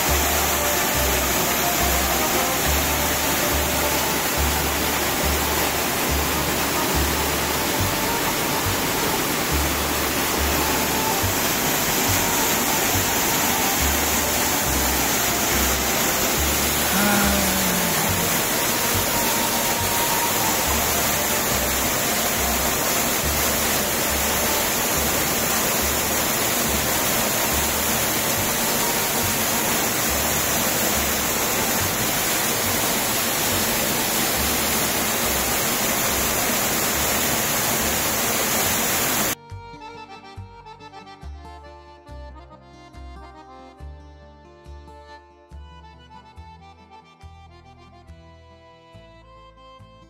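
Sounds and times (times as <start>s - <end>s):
accordion music: 0.0s - 38.2s, 38.9s - 50.0s
waterfall rushing: 0.0s - 39.4s.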